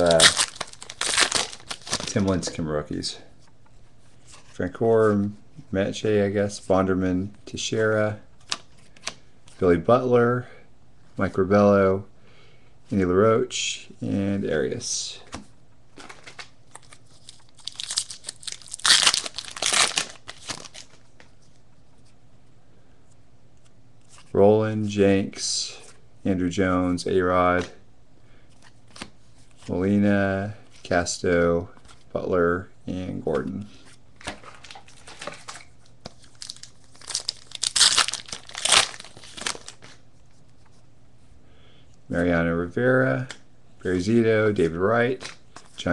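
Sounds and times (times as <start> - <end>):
wrapper crinkling and tearing: 0.0 - 2.3, 16.0 - 21.0, 34.2 - 40.0.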